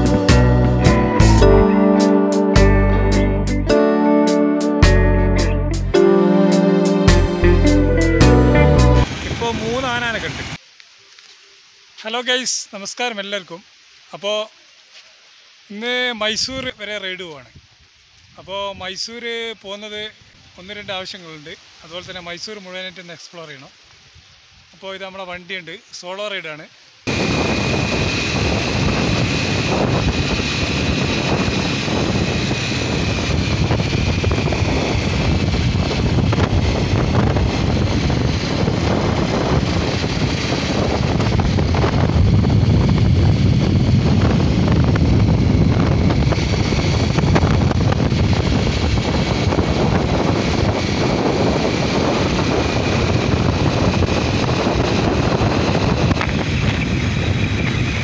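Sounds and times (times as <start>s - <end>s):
wind buffeting microphone: 27.1s - 58.0s.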